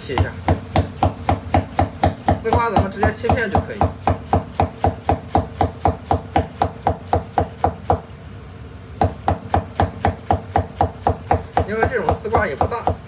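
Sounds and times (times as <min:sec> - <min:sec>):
cleaver chopping on wooden board: 0:00.0 - 0:08.0, 0:09.0 - 0:13.0.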